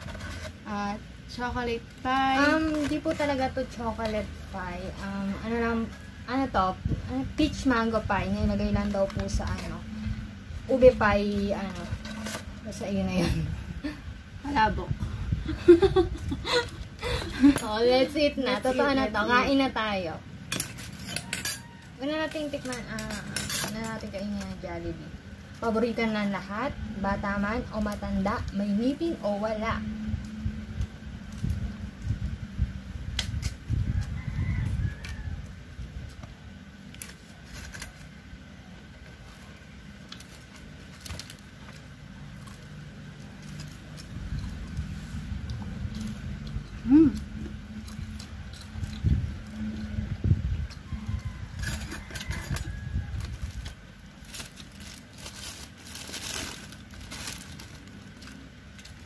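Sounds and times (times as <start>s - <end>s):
rooster crowing: 21.0s - 24.0s, 33.7s - 35.8s, 50.7s - 53.8s
chewing crispy fried chicken: 34.0s - 50.0s
paper wrapper crinkling: 36.8s - 45.1s, 52.1s - 59.0s.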